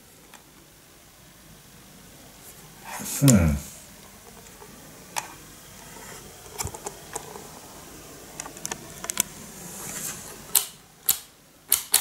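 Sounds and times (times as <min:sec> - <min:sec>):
multimeter clicks and taps: 0:10.5 - 0:12.0.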